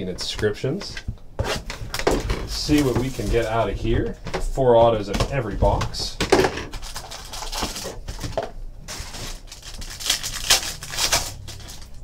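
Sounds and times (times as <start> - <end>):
foil wrapper crinkling and tearing: 2.5 - 3.7, 6.7 - 12.0.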